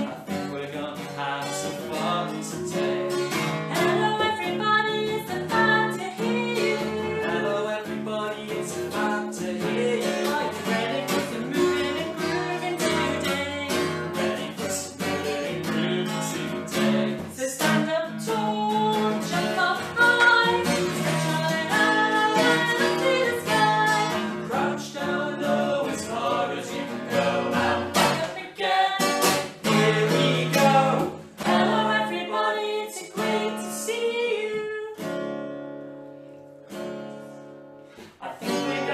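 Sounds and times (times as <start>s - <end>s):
woman and man singing: 0.0s - 35.2s, 38.0s - 38.9s
acoustic guitar strumming: 0.0s - 38.9s.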